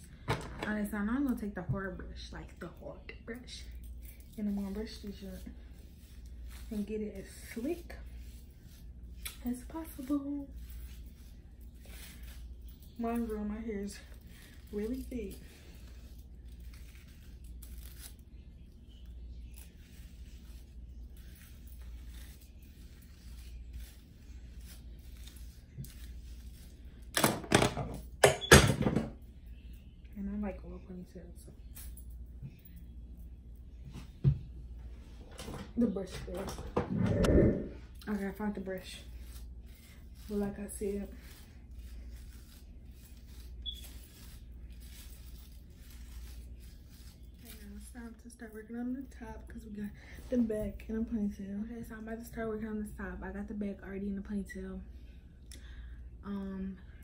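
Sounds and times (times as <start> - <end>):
low steady hum: 0.0 - 57.0
hairbrush scratching through hair: 3.4 - 27.1, 36.0 - 49.2.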